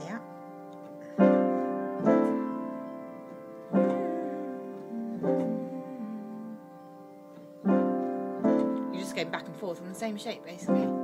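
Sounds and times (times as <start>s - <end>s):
piano chords played slowly: 0.0s - 11.0s.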